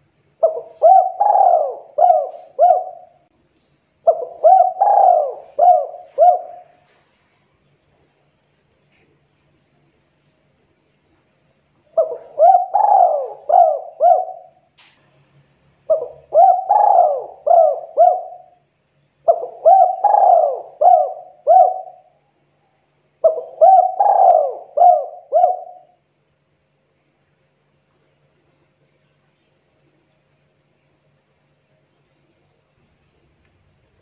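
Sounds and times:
dove cooing: 0.4s - 3.2s, 4.0s - 7.0s, 12.0s - 14.6s, 15.9s - 18.6s, 19.2s - 22.2s, 23.2s - 26.0s.

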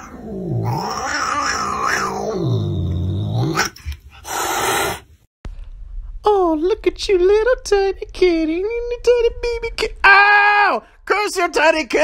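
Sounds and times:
cat growling: 0.0s - 5.1s
cat hissing: 3.5s - 5.2s.

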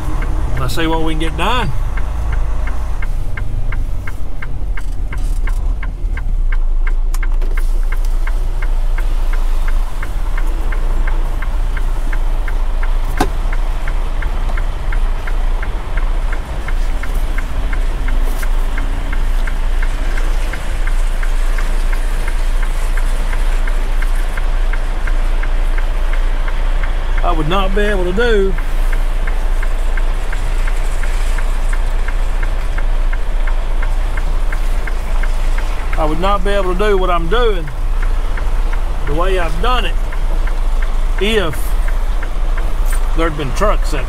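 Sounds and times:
diesel truck engine running: 0.0s - 44.0s.

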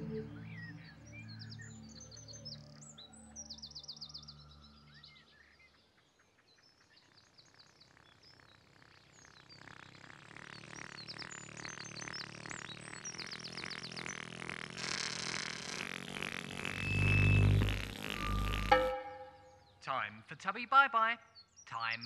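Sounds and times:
low steady musical tone: 0.0s - 3.7s, 18.3s - 19.7s
small birds chirping: 0.0s - 22.0s.

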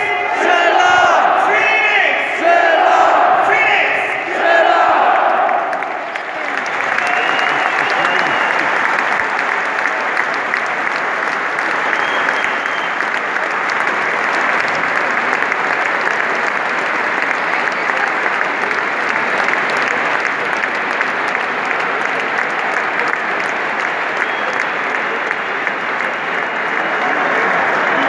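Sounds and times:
crowd voices: 0.0s - 28.0s
crowd applauding: 4.4s - 28.0s.

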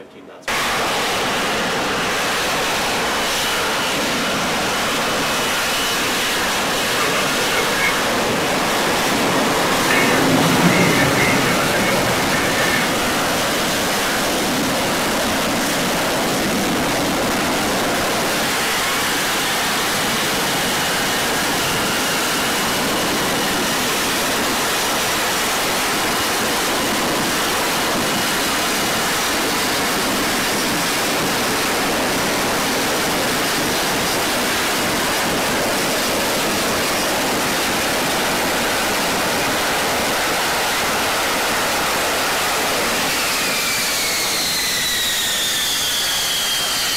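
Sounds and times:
jet engine roar in hover: 0.5s - 46.9s
faint high whine: 2.4s - 20.0s.

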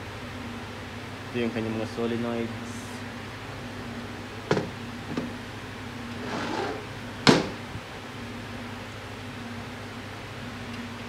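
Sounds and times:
fan hum: 0.0s - 11.0s
metal part knocking on workbench: 4.5s - 5.3s, 7.3s - 7.6s.

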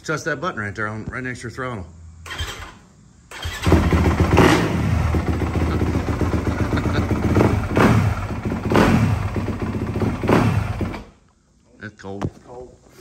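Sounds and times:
motorcycle engine starting and revving: 2.2s - 11.2s.

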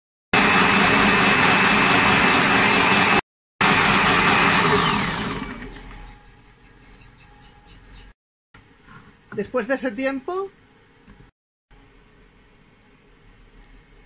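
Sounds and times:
blender whirring with whine: 0.4s - 6.0s.

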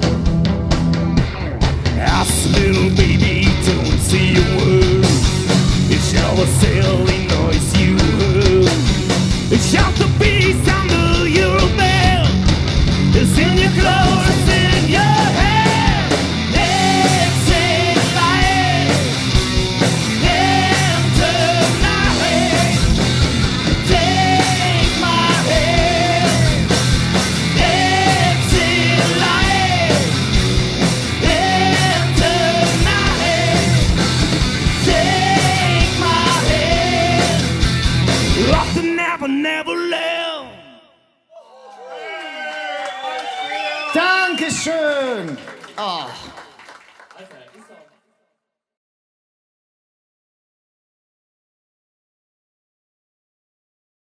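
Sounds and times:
rock band playing: 0.0s - 40.1s
person singing and shouting: 13.2s - 19.1s, 20.2s - 23.0s, 23.8s - 26.8s, 27.4s - 30.2s, 31.1s - 33.9s, 34.7s - 37.6s.

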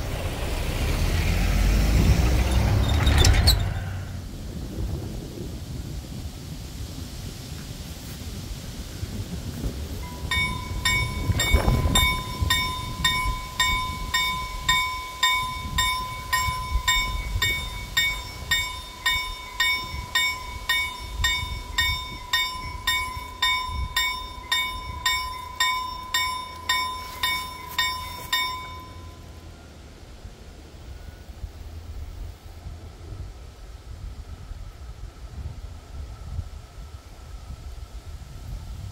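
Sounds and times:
crossing warning steady tone: 0.0s - 4.4s, 9.1s - 38.6s
low rumble: 0.0s - 6.6s, 8.9s - 36.4s
crossing bell striking: 10.0s - 29.8s.

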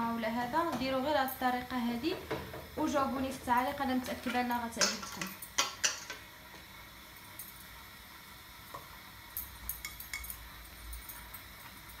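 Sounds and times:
faint sizzle on a griddle: 0.0s - 12.0s
light clicks and clinks over bowl: 9.3s - 12.0s.

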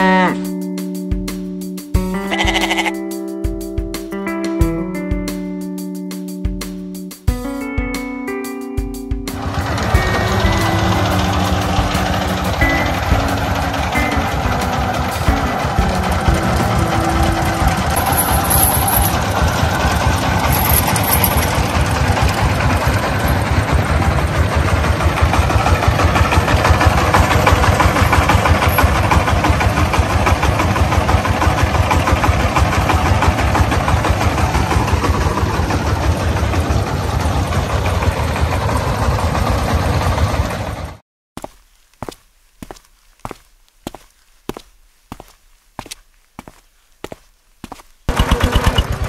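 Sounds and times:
small engine knocking: 9.4s - 40.9s, 48.1s - 49.0s.

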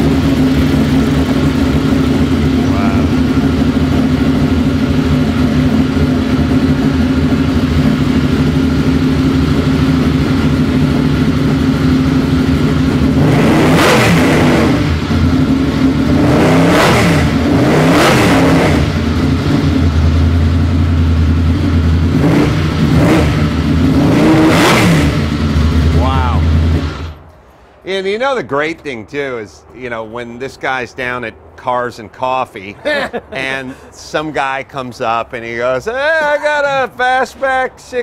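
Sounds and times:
car engine idling: 0.0s - 27.8s, 32.7s - 38.0s
engine throttle blips: 0.0s - 27.8s.

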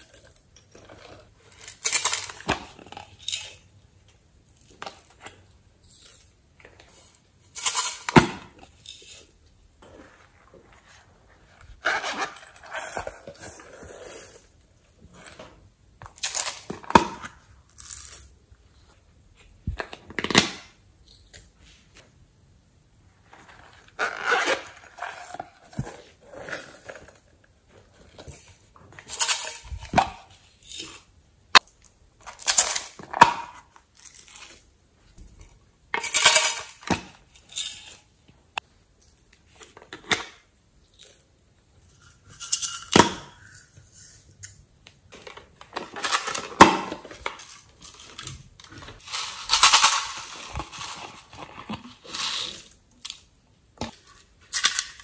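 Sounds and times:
plastic containers clattering: 45.1s - 52.4s.

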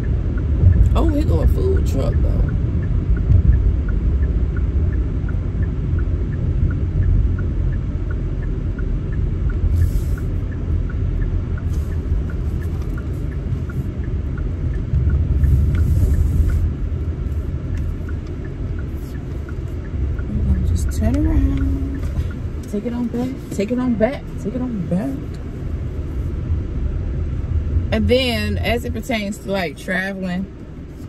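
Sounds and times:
car road noise rumble: 0.0s - 31.0s
turn signal ticking: 0.0s - 31.0s.

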